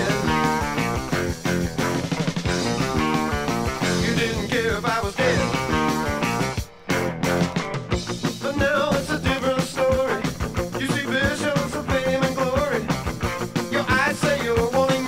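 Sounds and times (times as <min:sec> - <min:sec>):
person singing lead vocal: 0:00.0 - 0:01.0, 0:03.8 - 0:06.2, 0:08.4 - 0:13.0, 0:13.6 - 0:15.0
rock band playing: 0:00.0 - 0:15.0.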